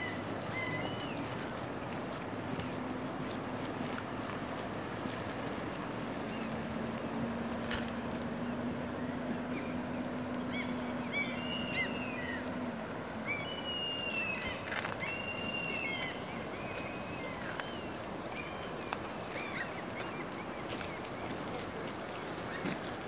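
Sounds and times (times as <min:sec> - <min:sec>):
low steady hum: 0:00.0 - 0:23.0
river water over stones: 0:00.0 - 0:23.0.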